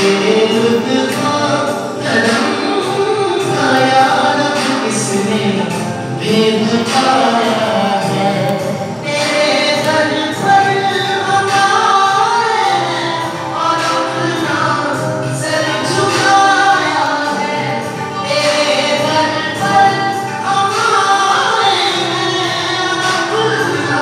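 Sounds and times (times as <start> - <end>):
group singing worship song: 0.0 - 24.0
steady beat: 0.0 - 24.0.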